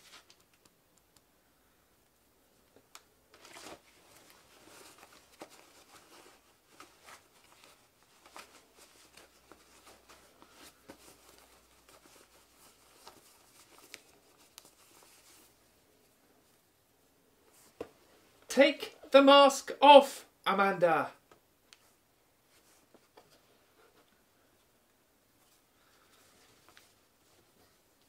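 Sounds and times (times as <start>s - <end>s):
paper and cloth rustling: 3.3s - 16.6s, 25.4s - 28.0s.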